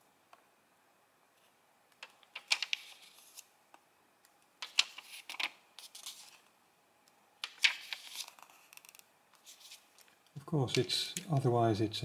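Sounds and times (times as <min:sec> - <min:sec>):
paper pages turning: 0:01.4 - 0:03.5, 0:04.6 - 0:06.5, 0:07.4 - 0:11.1.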